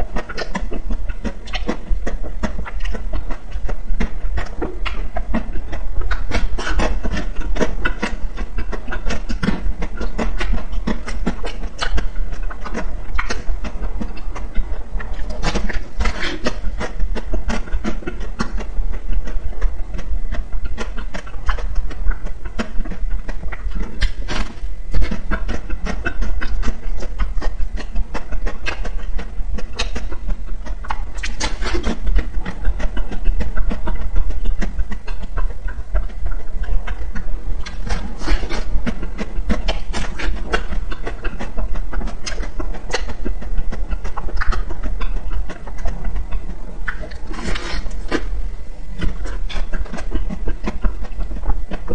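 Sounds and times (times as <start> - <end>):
chewing ice cream bar: 0.1 - 48.4, 49.0 - 51.9
wet mouth clicks: 11.5 - 13.4.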